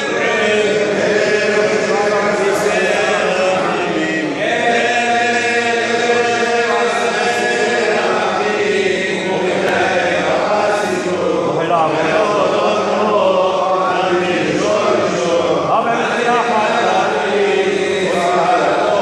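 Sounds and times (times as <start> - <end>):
men chanting prayers: 0.0 - 19.0.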